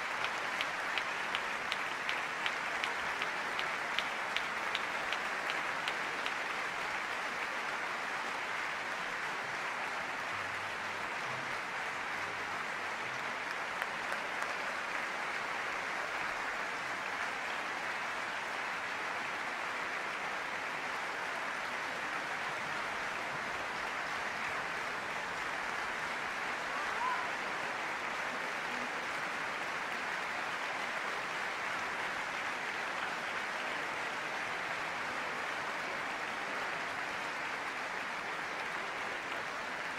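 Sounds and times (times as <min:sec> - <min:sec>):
single claps: 0:00.0 - 0:06.4
audience applauding: 0:00.0 - 0:39.9.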